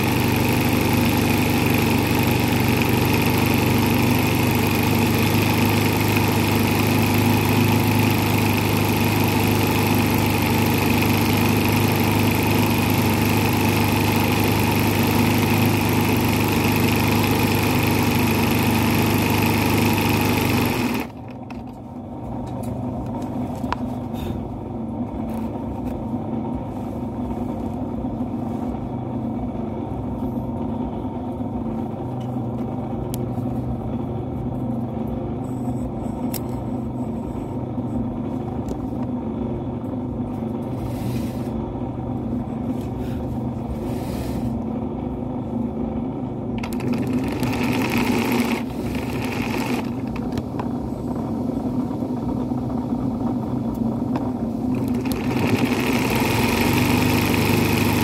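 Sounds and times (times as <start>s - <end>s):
sewing machine running: 0.0s - 21.6s, 46.5s - 50.6s, 54.6s - 58.0s.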